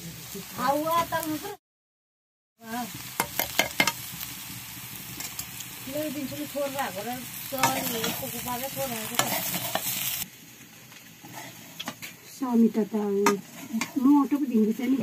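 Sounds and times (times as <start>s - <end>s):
potatoes sizzling in pan: 0.0s - 1.6s, 2.6s - 15.0s
spatula scraping metal pan: 7.6s - 10.2s, 11.2s - 12.1s, 13.2s - 14.3s.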